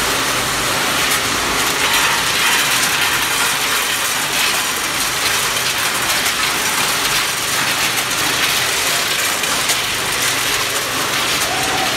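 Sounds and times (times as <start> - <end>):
frozen beans rattling over metal: 1.1 - 11.9.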